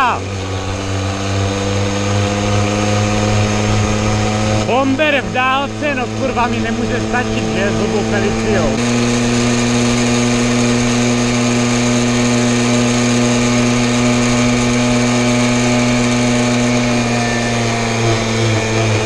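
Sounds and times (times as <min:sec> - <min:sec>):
moped engine running: 0:00.0 - 0:19.0.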